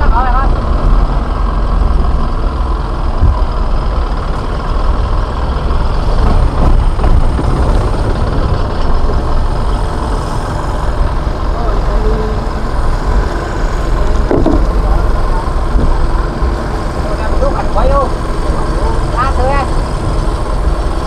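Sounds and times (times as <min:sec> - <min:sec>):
boat engine rumbling: 0:00.0 - 0:21.0.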